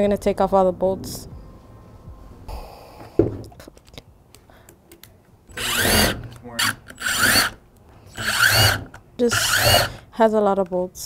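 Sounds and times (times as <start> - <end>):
power driver whirring: 5.5 - 10.1.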